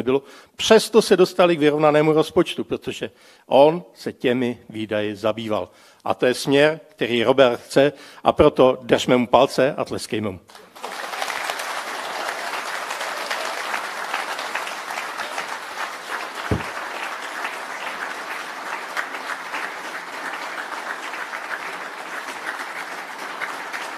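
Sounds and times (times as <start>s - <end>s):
audience applauding: 10.5s - 23.9s
low thump: 16.5s - 16.7s.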